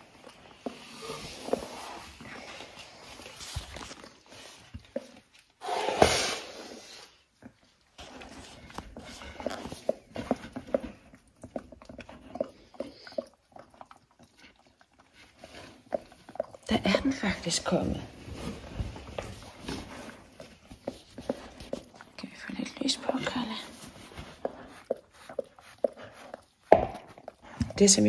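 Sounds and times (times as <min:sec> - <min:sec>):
dog licking wetly: 0:07.4 - 0:18.3, 0:18.9 - 0:28.0.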